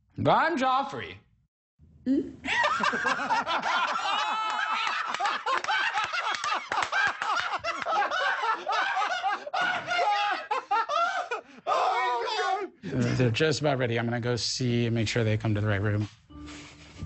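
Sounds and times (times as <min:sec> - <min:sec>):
people laughing heartily: 0:02.5 - 0:13.4.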